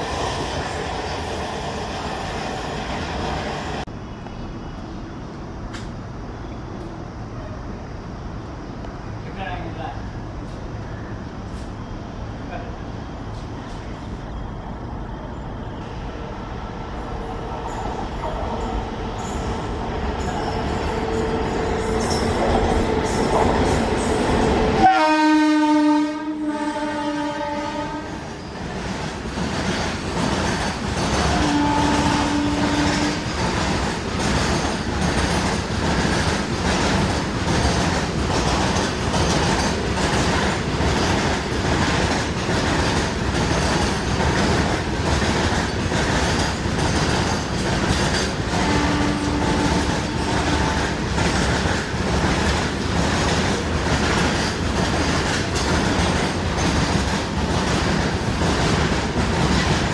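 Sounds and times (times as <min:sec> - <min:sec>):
train horn: 0:24.8 - 0:28.2, 0:31.3 - 0:33.2, 0:48.6 - 0:50.8.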